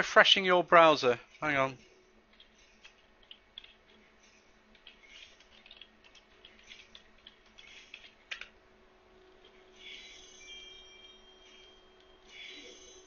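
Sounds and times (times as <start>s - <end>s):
typing on computer keyboard: 2.3s - 4.0s, 4.7s - 8.5s.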